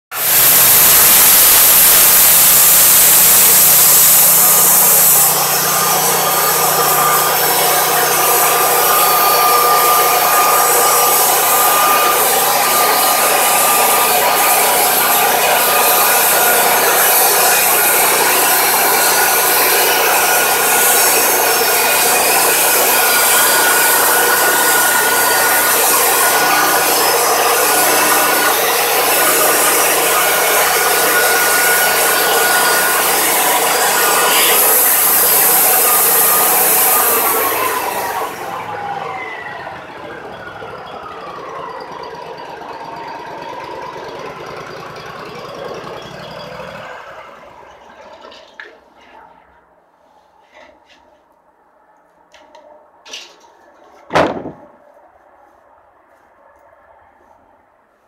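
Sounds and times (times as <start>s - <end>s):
sawmill engine under load: 0.1s - 49.7s
band blade sawing wood: 0.2s - 38.5s.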